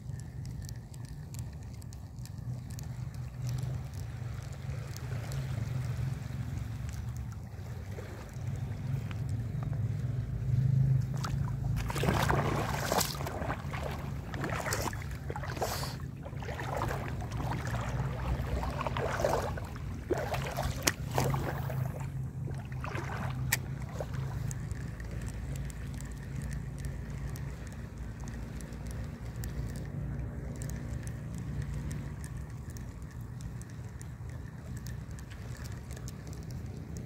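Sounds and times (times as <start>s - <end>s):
sharp clicks: 0.0s - 6.0s, 23.4s - 37.0s
seawater sloshing and splashing: 0.0s - 37.0s.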